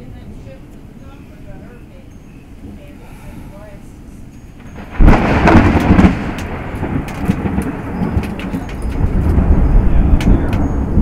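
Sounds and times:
thunderclap: 4.6s - 11.0s.

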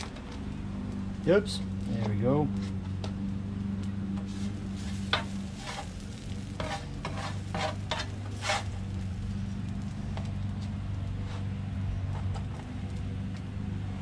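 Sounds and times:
steady low hum: 0.0s - 14.0s
spatula scraping griddle: 4.1s - 12.6s.

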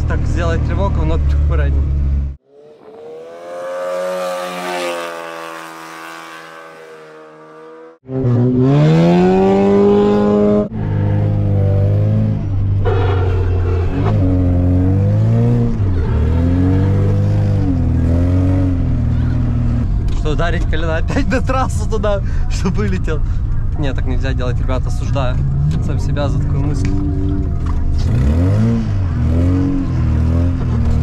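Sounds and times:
car engine revving hard: 2.8s - 19.8s, 25.4s - 31.0s.

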